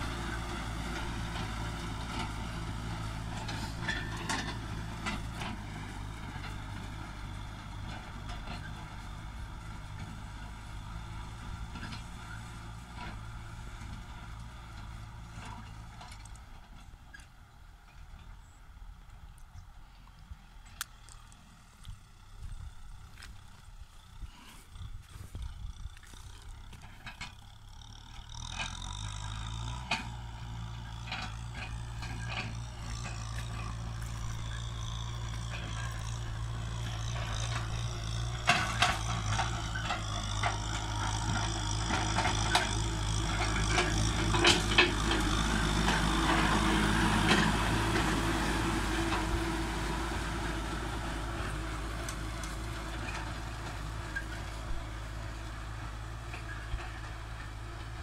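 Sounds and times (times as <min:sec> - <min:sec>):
diesel tractor engine under load: 0:00.0 - 0:58.0
plough knocks and clatter: 0:28.2 - 0:48.2.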